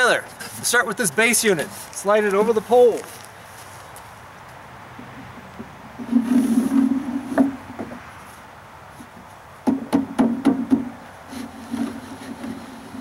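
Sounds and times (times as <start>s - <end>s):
sleeve rubbing on wooden post: 5.0s - 8.1s, 9.0s - 13.0s.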